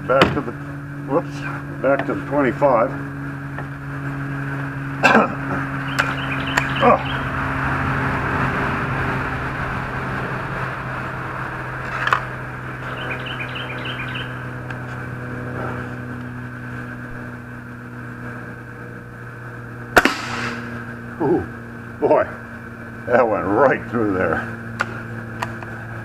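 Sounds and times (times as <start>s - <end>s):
low mechanical hum: 0.0s - 26.0s
birds chirping: 3.0s - 18.0s
air rifle shot: 20.0s - 20.8s.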